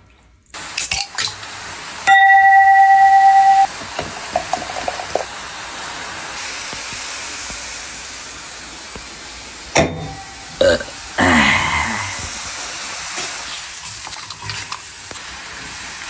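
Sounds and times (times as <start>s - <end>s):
broth simmering hiss: 0.5s - 16.0s
loud steady high tone: 2.1s - 3.7s.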